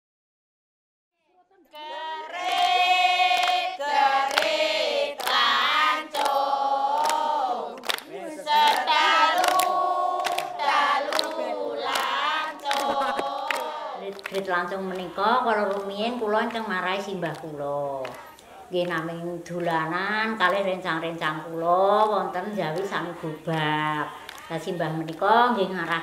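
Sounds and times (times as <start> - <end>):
voices singing together: 1.6 - 26.0
sharp claps or knocks: 2.4 - 3.7, 4.3 - 4.6, 5.2 - 5.4, 6.1 - 6.4, 7.0 - 7.2, 7.8 - 15.9, 23.5 - 25.2.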